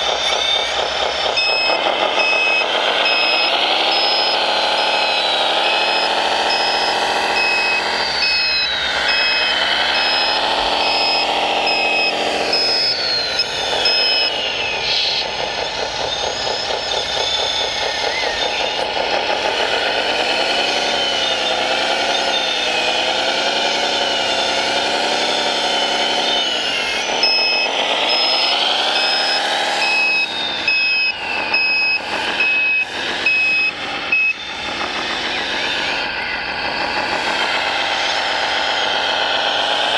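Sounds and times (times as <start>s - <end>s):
model motor whine: 0.0s - 39.9s
reversing beeper: 0.0s - 39.9s.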